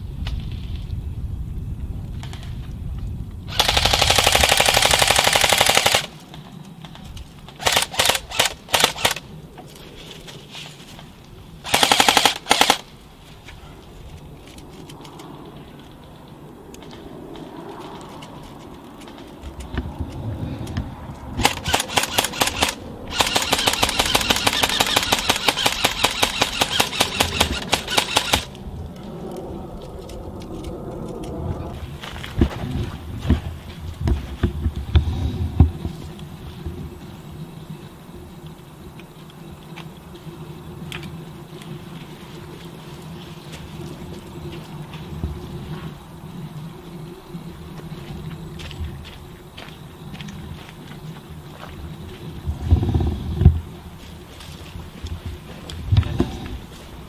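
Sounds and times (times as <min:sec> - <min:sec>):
airsoft rifles firing bursts: 0:03.5 - 0:06.2, 0:07.6 - 0:09.2, 0:11.6 - 0:12.9, 0:21.4 - 0:28.6.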